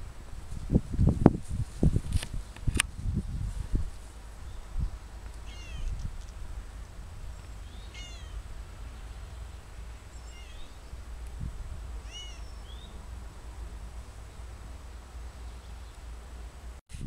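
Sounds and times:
low steady rumble: 0.0s - 16.8s
cat meowing: 5.4s - 6.0s, 7.8s - 8.4s, 10.2s - 10.8s, 12.0s - 12.5s.

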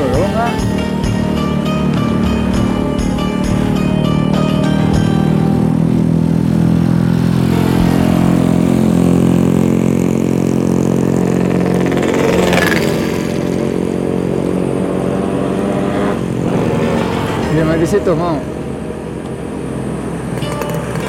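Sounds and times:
motor scooter engine running: 0.0s - 21.0s.

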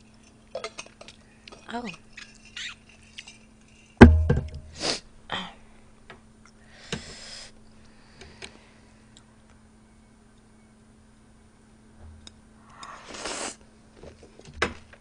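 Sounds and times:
breathy sniffs and exhales: 12.6s - 13.6s.

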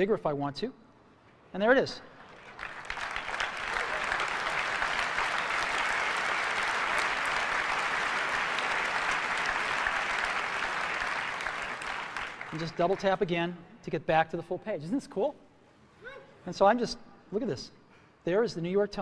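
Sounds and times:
audience applauding: 2.2s - 13.2s.

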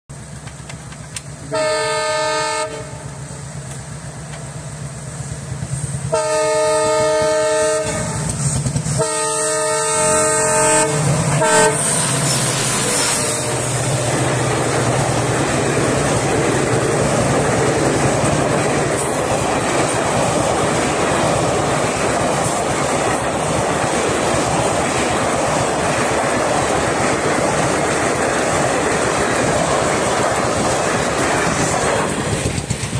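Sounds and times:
locomotive engine drone: 0.1s - 32.9s
train coaches clickety-clack: 0.1s - 32.9s
locomotive horn blasts: 1.4s - 3.1s, 6.1s - 13.9s.

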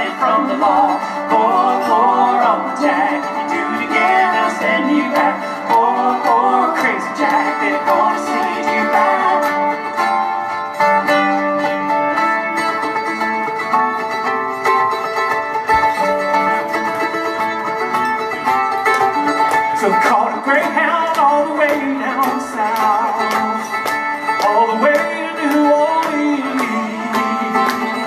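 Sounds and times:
bluegrass instrumental duo: 0.0s - 28.0s
guitar picking rhythm: 0.0s - 28.0s.

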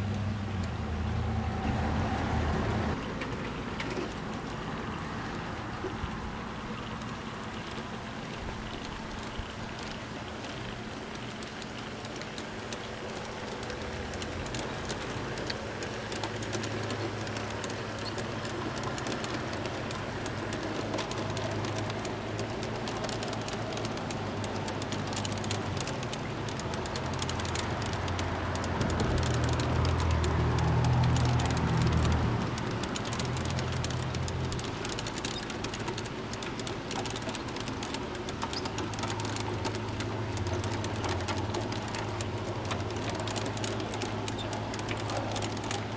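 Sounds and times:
wheels clicking over rail joints: 0.0s - 45.9s
model freight cars rolling past: 11.7s - 45.9s.

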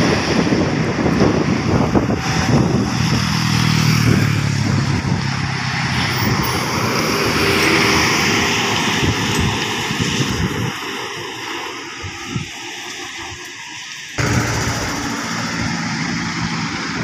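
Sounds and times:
motorcycle passing: 0.0s - 9.1s
bus diesel engine passing: 0.0s - 17.0s.

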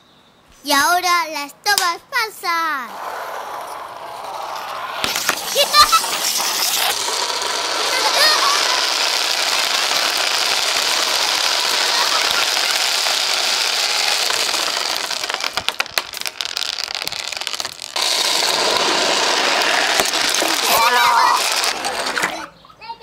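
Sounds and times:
beads clattering down plastic chute: 4.2s - 22.5s.

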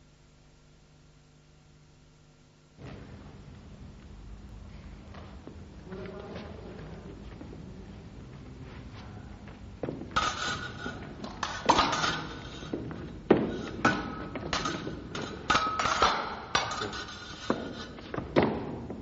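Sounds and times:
fencing blades clashing: 9.9s - 18.8s.

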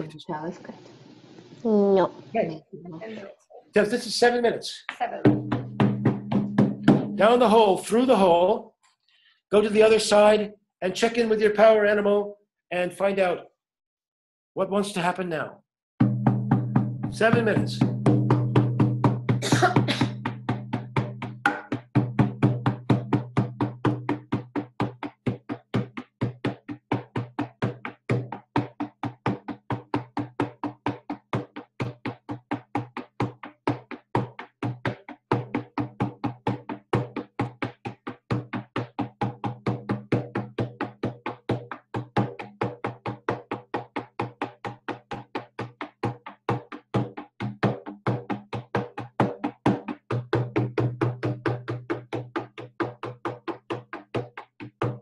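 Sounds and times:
frame drum beating: 5.0s - 8.3s, 16.0s - 55.0s.

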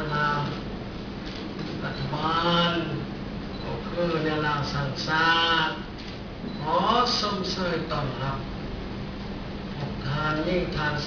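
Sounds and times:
man speaking: 0.0s - 0.7s, 1.8s - 5.9s, 6.6s - 8.5s, 9.9s - 11.0s
faint low hum: 0.0s - 11.0s.

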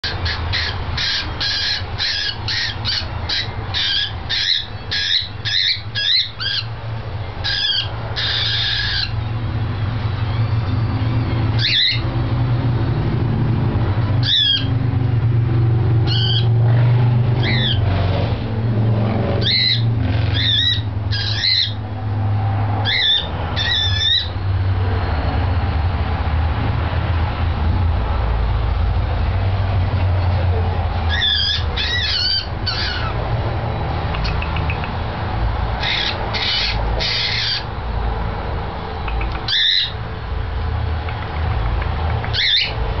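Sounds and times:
cockatiel screeching and calling: 0.0s - 6.8s, 7.4s - 9.3s, 10.2s - 12.2s, 14.2s - 14.8s, 16.0s - 16.6s, 17.4s - 17.9s, 19.4s - 21.8s, 22.8s - 24.4s, 31.1s - 33.3s, 35.8s - 37.8s, 39.1s - 40.0s, 42.3s - 42.8s.

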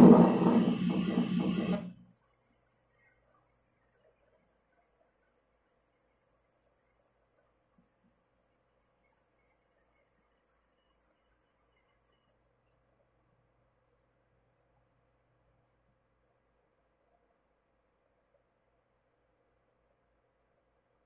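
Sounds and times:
high-pitched insect buzzing: 2.8s - 12.4s.

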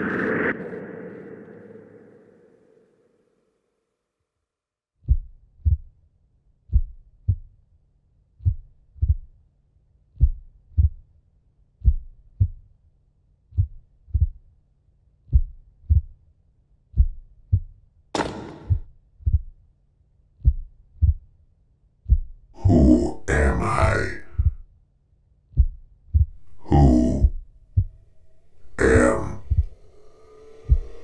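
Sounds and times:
heartbeat thuds: 5.0s - 5.9s, 6.7s - 7.5s, 8.4s - 9.3s, 10.2s - 11.0s, 11.8s - 12.7s, 13.5s - 14.4s, 15.3s - 16.2s, 16.9s - 19.6s, 20.4s - 21.3s, 22.0s - 22.5s, 24.4s - 24.6s, 25.5s - 26.5s, 27.2s - 28.1s, 30.7s - 31.0s
faint low hum: 25.6s - 31.0s.

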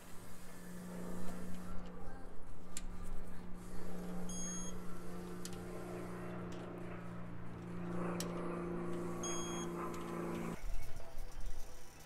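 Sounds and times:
steady low hum: 0.0s - 12.0s
short electronic beep: 9.2s - 9.7s.

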